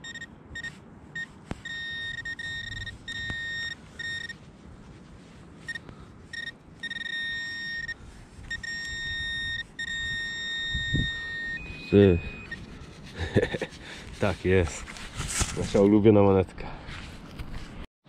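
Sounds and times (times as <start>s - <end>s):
metal detector beeps: 0.0s - 4.4s, 5.6s - 12.8s.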